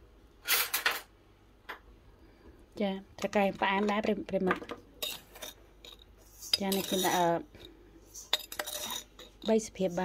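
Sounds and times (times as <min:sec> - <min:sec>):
spoons clinking on metal bowl: 0:05.0 - 0:10.0.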